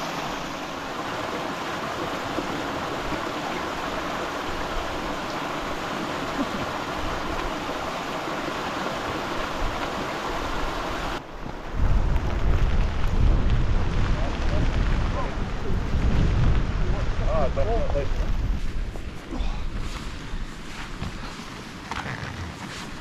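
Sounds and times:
waterfall splashing into pool: 0:00.0 - 0:11.2
wind buffeting microphone: 0:11.3 - 0:21.2.

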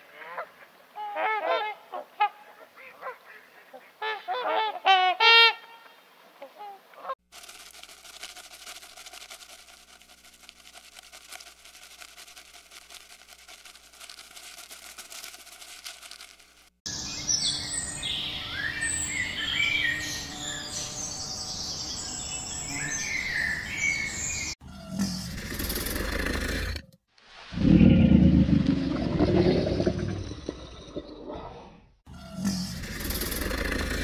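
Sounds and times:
small birds chirping: 0:16.9 - 0:24.6.

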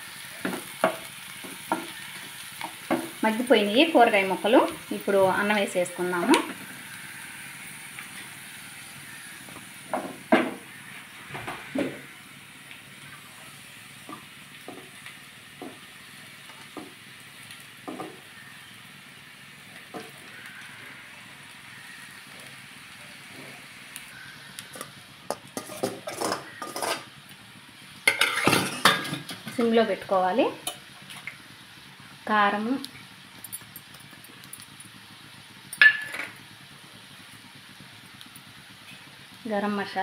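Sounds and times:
vegetables sizzling in a frying pan: 0:00.0 - 0:40.0
utensils tapping a pan: 0:17.9 - 0:18.2, 0:24.8 - 0:27.1.

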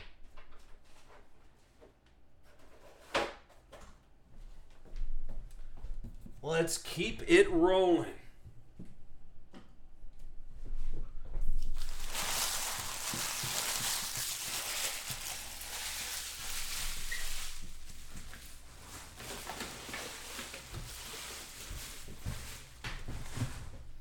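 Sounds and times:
foil wrappers crinkling: 0:11.6 - 0:23.1.

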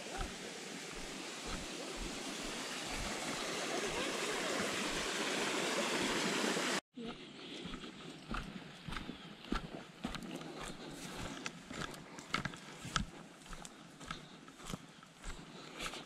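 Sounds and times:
footsteps on trail: 0:00.0 - 0:05.2, 0:07.0 - 0:16.0
stream water rushing: 0:00.0 - 0:06.8.

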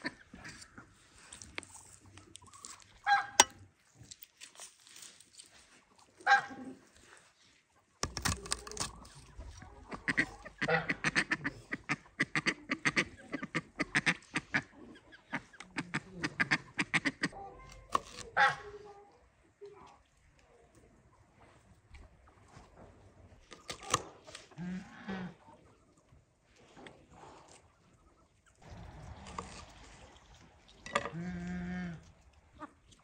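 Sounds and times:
goose honking: 0:10.0 - 0:12.0.

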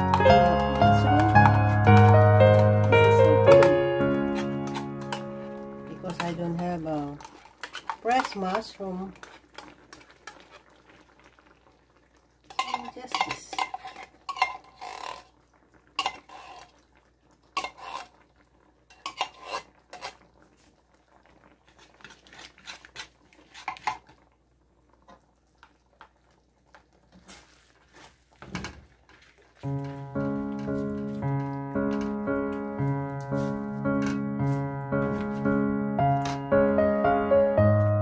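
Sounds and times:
metal utensils scraping a wok: 0:03.5 - 0:09.4, 0:12.5 - 0:15.3, 0:16.0 - 0:16.7, 0:17.6 - 0:18.2, 0:18.9 - 0:20.2, 0:21.7 - 0:24.0.

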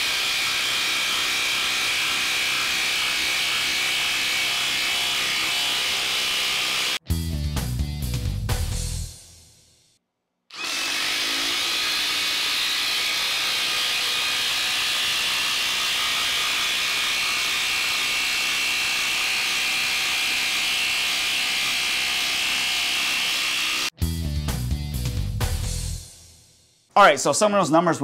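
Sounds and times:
impact wrench hammering: 0:10.6 - 0:23.8.

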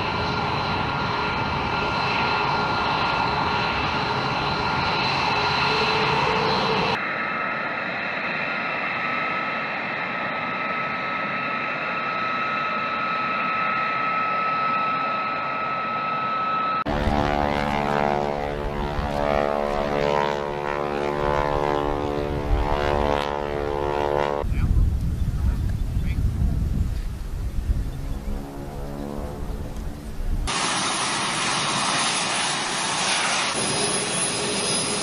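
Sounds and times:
buzzy jet engine with rushing hiss: 0:00.0 - 0:13.6, 0:26.8 - 0:35.0
jet engines whining: 0:00.0 - 0:35.0.

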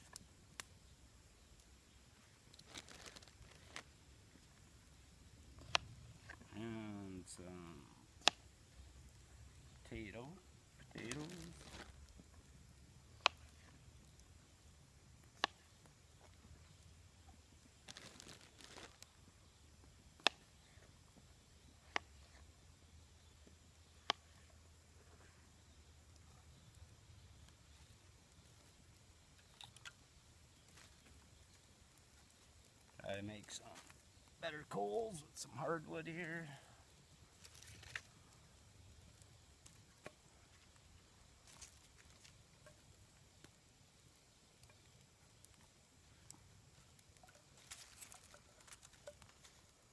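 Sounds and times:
faint crackling: 0:01.4 - 0:49.9
sticks clicking and snapping: 0:08.2 - 0:08.4, 0:15.4 - 0:15.6.

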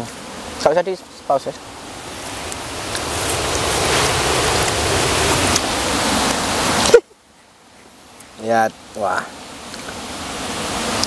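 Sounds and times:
loud rushing noise: 0:01.8 - 0:06.8.

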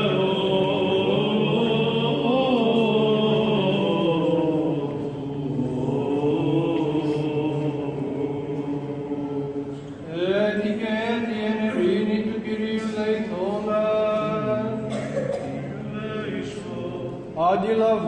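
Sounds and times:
man chanting: 0:10.1 - 0:14.9, 0:15.6 - 0:18.0.

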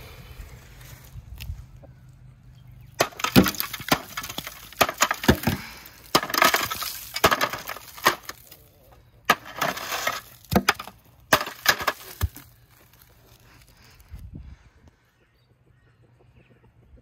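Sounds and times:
ice cracking and crunching: 0:03.0 - 0:08.7, 0:09.3 - 0:14.2.

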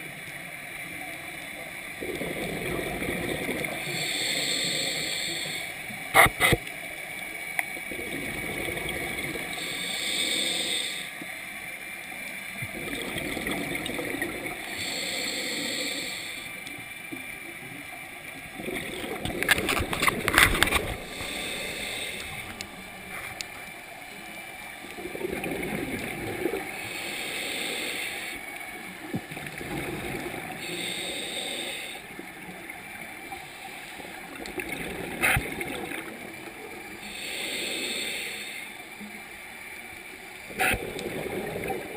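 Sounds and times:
regulator breathing underwater: 0:02.0 - 0:06.6, 0:08.0 - 0:11.2, 0:12.9 - 0:16.7, 0:18.8 - 0:23.3, 0:25.0 - 0:28.5, 0:29.8 - 0:32.2, 0:36.9 - 0:38.9.

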